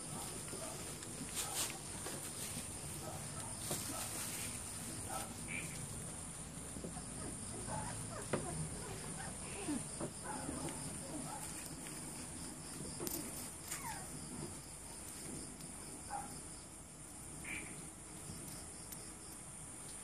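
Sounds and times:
high insect chirring: 2.4 - 15.2.

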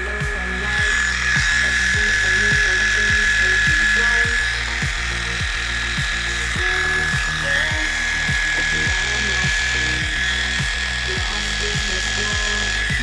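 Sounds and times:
background music with a beat: 0.0 - 13.0
electric clipper whining: 0.0 - 13.0.

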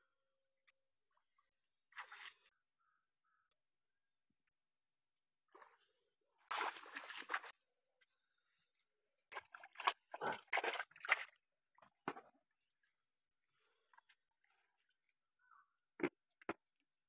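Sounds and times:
water splashing: 6.5 - 7.5, 9.3 - 11.4
fish thrashing in water: 9.3 - 12.0.

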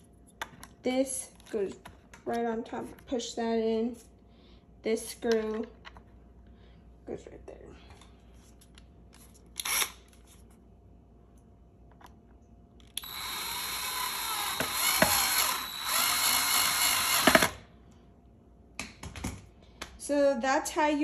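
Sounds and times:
cordless drill driving a screw: 9.6 - 10.0, 13.0 - 17.6.

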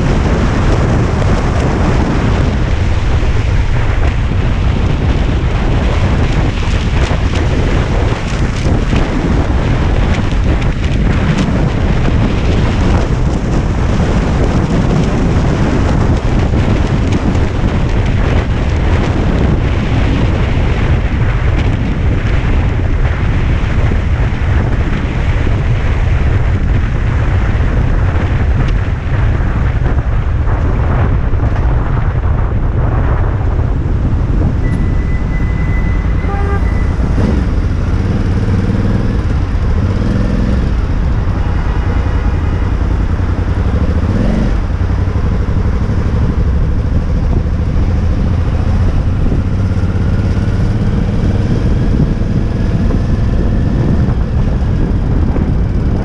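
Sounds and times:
motorcycle engine: 0.0 - 56.0
road rumble: 0.0 - 56.0
wind buffeting microphone: 0.0 - 56.0.

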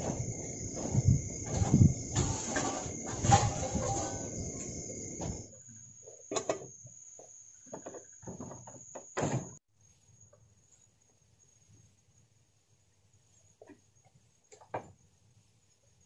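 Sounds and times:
kitchen things clattering: 0.0 - 5.5
night insects trilling: 0.0 - 9.2.

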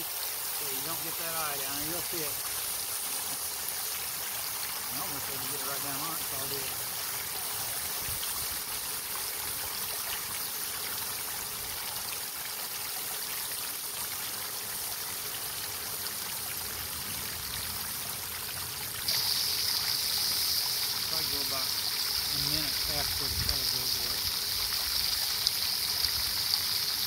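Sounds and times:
loud high hiss: 0.0 - 3.3, 19.1 - 24.4
water spray hissing on hot metal: 0.0 - 12.3, 19.1 - 27.0.

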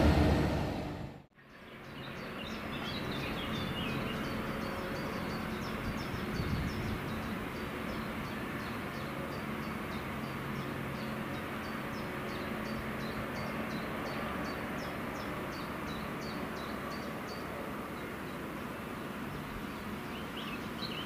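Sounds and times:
train rumble: 0.0 - 1.3
small birds chirping: 19.3 - 21.0.

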